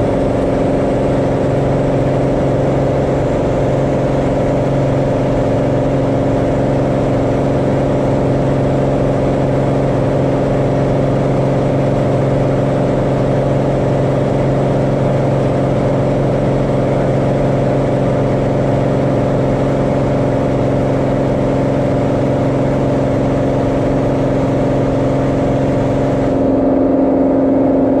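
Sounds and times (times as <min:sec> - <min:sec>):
propeller plane engine running: 0:00.0 - 0:28.0.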